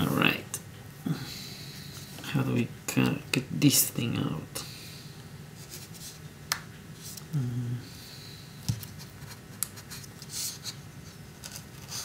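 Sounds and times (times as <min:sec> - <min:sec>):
low voice hum: 0:07.2 - 0:08.0.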